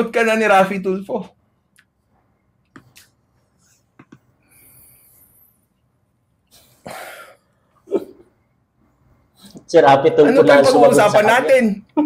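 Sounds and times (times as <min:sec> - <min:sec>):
man's breathy cough: 0:06.6 - 0:08.2.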